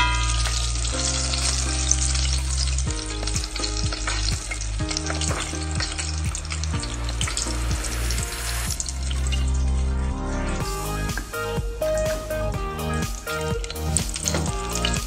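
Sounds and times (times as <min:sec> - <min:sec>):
chicken deep-frying in oil: 0:00.0 - 0:09.9.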